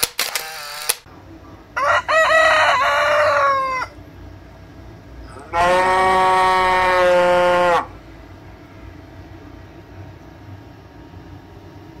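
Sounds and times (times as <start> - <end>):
rooster crowing: 1.8 - 4.0, 5.5 - 7.9.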